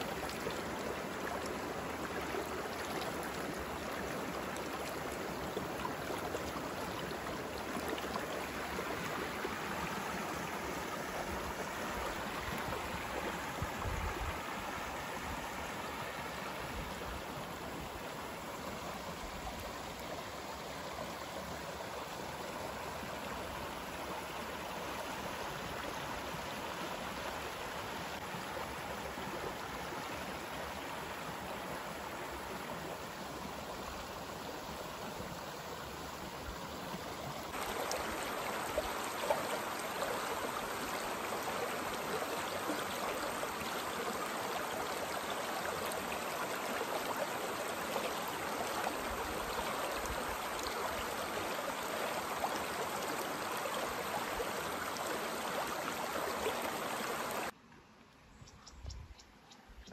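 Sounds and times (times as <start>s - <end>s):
stream rushing and babbling: 0.0s - 58.4s.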